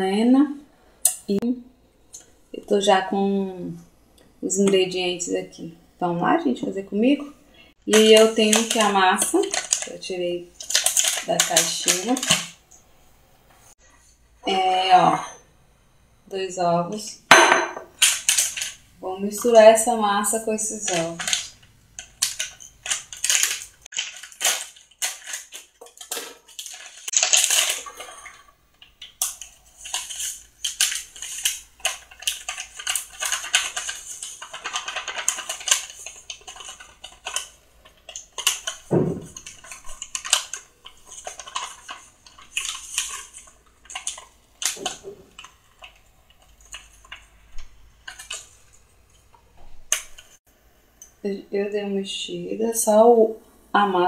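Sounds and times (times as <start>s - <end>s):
plastic bag crinkling: 7.9s - 12.6s, 18.0s - 48.9s.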